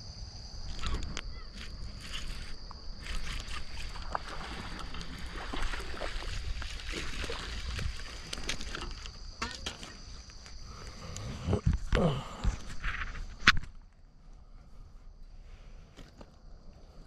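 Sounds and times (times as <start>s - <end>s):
night insects trilling: 0.0s - 17.0s
fishing gear clicking and rustling: 6.6s - 10.6s.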